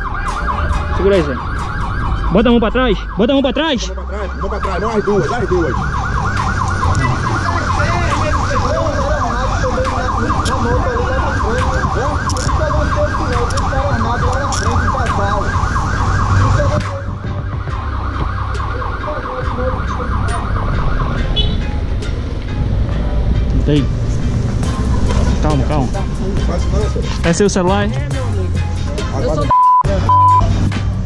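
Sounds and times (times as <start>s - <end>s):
siren yelping: 0.0s - 21.6s.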